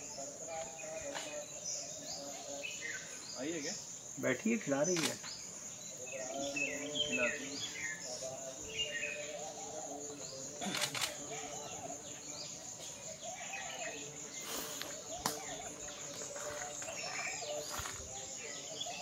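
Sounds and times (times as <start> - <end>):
high drone of insects: 0.0 - 19.0
small birds chirping: 0.0 - 19.0
sharp clicks: 4.9 - 5.3.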